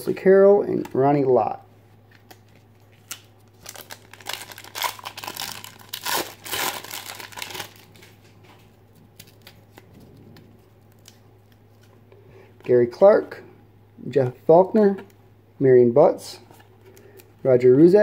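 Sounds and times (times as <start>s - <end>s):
foil wrapper tearing and crinkling: 3.0s - 8.1s.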